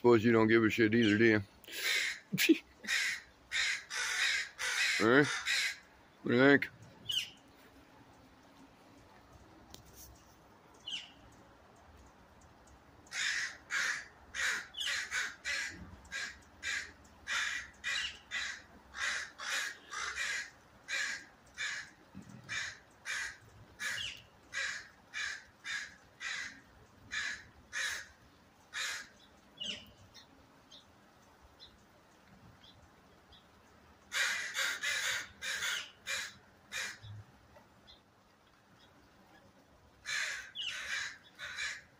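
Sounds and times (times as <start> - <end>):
crows cawing: 1.7 - 5.9, 13.0 - 29.7, 34.1 - 37.2, 40.0 - 41.9.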